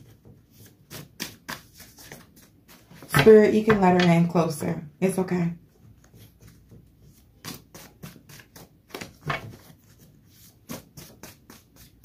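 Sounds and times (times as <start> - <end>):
paper cards shuffled: 0.0 - 3.3, 6.0 - 12.0.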